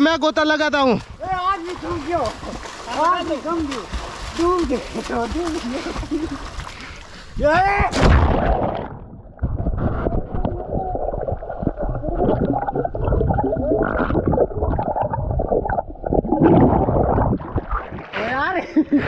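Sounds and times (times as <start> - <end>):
splash of dive into pool: 7.9 - 10.3
underwater gurgling and bubbling: 8.3 - 18.1.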